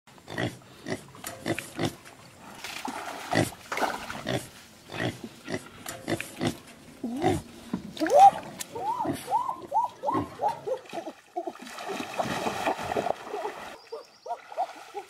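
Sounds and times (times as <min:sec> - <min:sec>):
wild boar grunting: 0:04.2 - 0:07.6.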